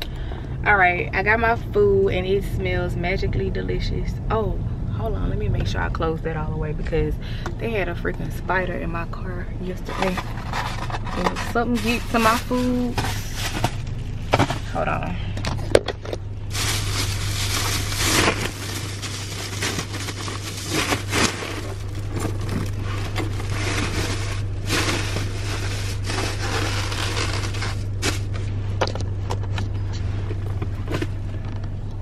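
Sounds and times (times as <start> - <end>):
low hum: 0.0 - 32.0
food bag crinkling and rustling: 9.9 - 14.6, 15.8 - 28.4.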